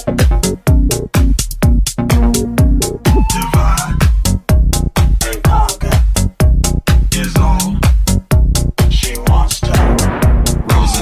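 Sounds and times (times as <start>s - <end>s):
techno kick drum: 0.0s - 3.7s, 9.3s - 11.0s
synth parts: 2.2s - 4.4s.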